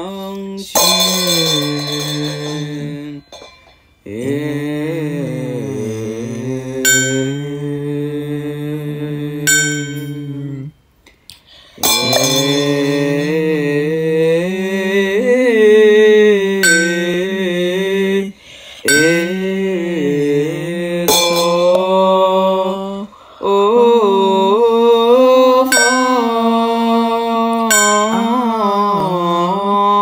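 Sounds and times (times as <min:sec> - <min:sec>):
person chanting long notes: 0:00.0 - 0:10.8, 0:11.8 - 0:30.0
small bell ringing: 0:00.8 - 0:04.0, 0:06.9 - 0:07.6, 0:09.5 - 0:10.6, 0:11.8 - 0:13.3, 0:16.6 - 0:17.4, 0:18.9 - 0:19.5, 0:21.1 - 0:21.8, 0:25.7 - 0:26.5, 0:27.7 - 0:28.6.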